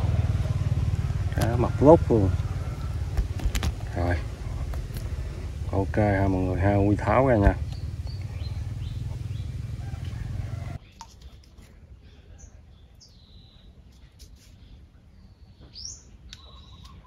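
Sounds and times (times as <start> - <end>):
loud steady low noise: 0.0 - 10.4
lower repeated bird call: 0.0 - 10.9, 15.5 - 17.0
small birds chirping: 0.0 - 17.0.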